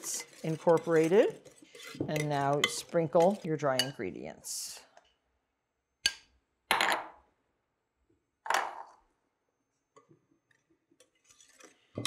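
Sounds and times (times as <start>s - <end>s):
metal sieve sifting flour: 0.0s - 3.8s.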